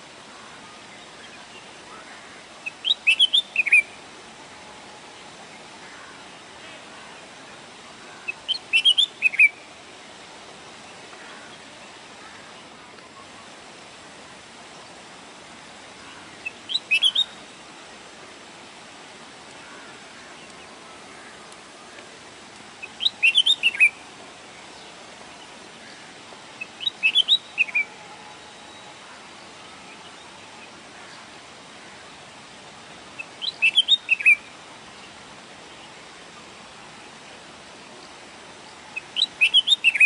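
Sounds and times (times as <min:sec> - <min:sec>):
steady background hiss: 0:00.0 - 0:40.0
bird chirping song: 0:02.6 - 0:04.0, 0:08.2 - 0:09.7, 0:16.0 - 0:17.4, 0:22.8 - 0:24.0, 0:26.6 - 0:31.3, 0:33.2 - 0:36.0, 0:37.9 - 0:40.0.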